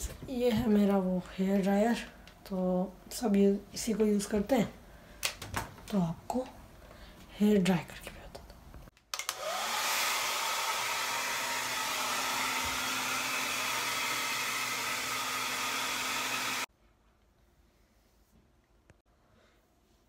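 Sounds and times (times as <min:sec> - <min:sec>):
hair dryer switch click: 0:09.1 - 0:09.6
hair dryer blowing: 0:09.2 - 0:16.7.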